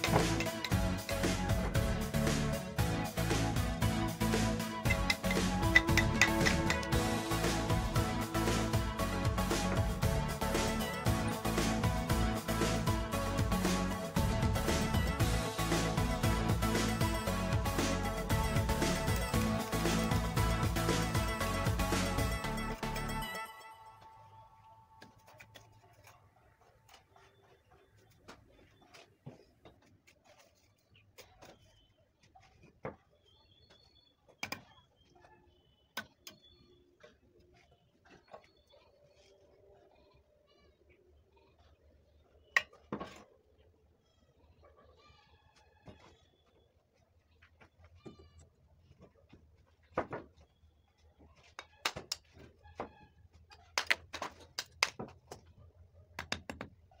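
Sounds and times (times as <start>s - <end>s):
trowel clinking on bricks: 0.0s - 1.2s, 4.8s - 7.0s.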